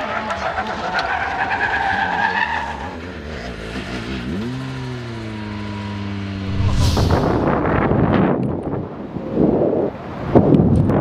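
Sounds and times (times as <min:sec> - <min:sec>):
rally car engine: 0:00.0 - 0:06.4
whoosh and rush of noise: 0:06.4 - 0:08.6.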